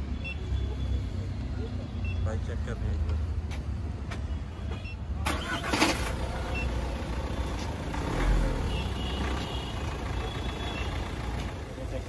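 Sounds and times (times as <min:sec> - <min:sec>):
low rumble of traffic: 0:00.0 - 0:12.0.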